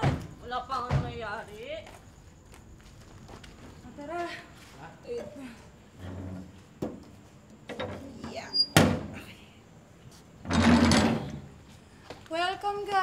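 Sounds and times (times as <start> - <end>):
gate scraping rattle: 10.4 - 11.5.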